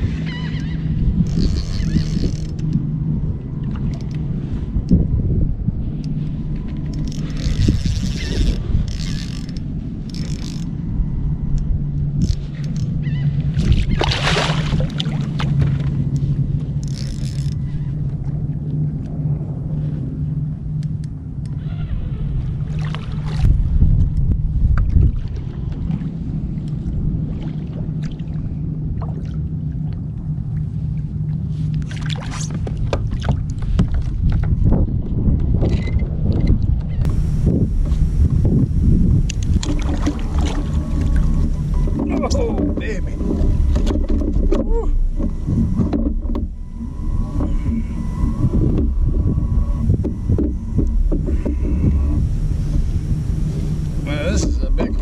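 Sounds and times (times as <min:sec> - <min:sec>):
low rumble: 0:00.0 - 0:55.0
reel drag buzzing: 0:00.0 - 0:55.0
steady low hum: 0:00.0 - 0:55.0
fishing reel cranking: 0:00.5 - 0:02.9, 0:06.8 - 0:10.8, 0:11.6 - 0:13.2, 0:16.8 - 0:17.8
fish splashing at the surface: 0:13.8 - 0:15.3.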